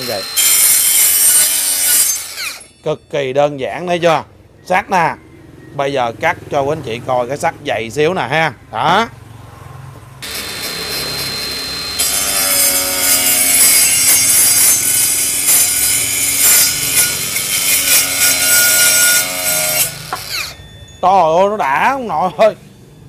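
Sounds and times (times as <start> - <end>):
circular saw grinding steel pipe: 0.0 - 3.2, 10.2 - 22.5.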